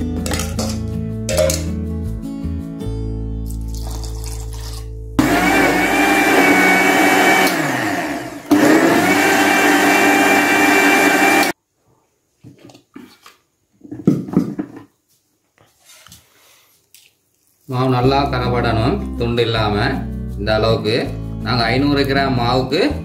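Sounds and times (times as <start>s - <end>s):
mixer grinder running: 5.2s - 11.6s.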